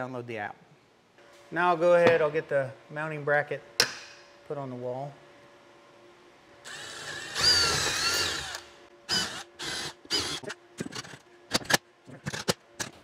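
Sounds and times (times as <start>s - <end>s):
cordless drill driving a screw: 6.7s - 10.5s.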